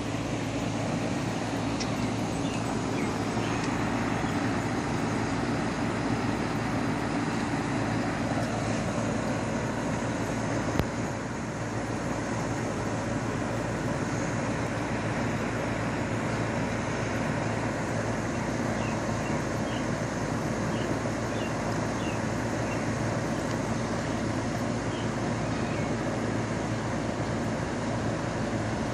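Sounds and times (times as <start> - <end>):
air conditioner unit whirring: 0.0 - 28.9.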